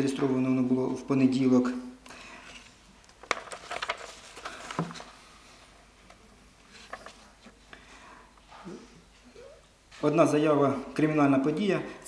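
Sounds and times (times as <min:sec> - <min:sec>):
small clicks and rustles: 0:02.5 - 0:05.2, 0:06.0 - 0:07.7.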